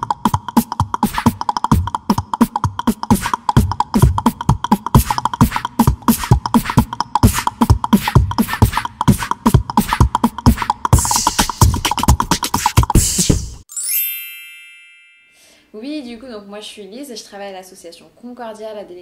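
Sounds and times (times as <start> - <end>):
fast percussive beat: 0.0 - 13.7.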